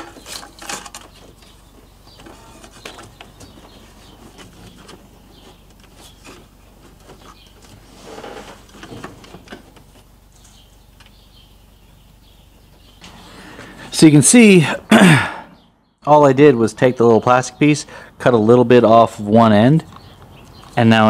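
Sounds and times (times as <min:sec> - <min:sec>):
rustling: 0:00.0 - 0:10.8.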